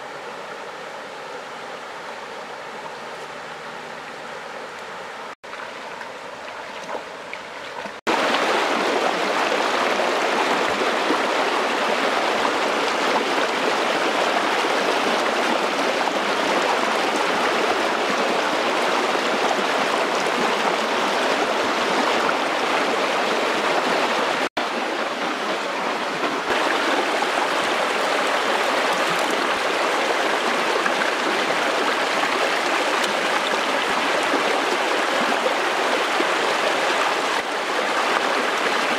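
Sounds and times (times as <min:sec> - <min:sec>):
stream water rushing: 0:00.0 - 0:38.9.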